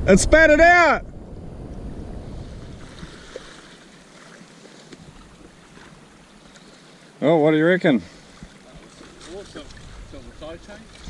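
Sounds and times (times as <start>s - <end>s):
wind on microphone: 0.0s - 3.6s, 8.3s - 11.0s
water lapping around kayak: 2.3s - 11.0s.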